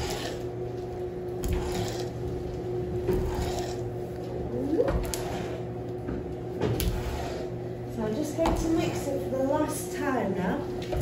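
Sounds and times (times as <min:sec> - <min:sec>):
wooden paddle scraping fudge: 0:00.0 - 0:00.5, 0:01.4 - 0:02.2, 0:03.0 - 0:03.9, 0:06.9 - 0:07.6
steady low hum: 0:00.0 - 0:11.0.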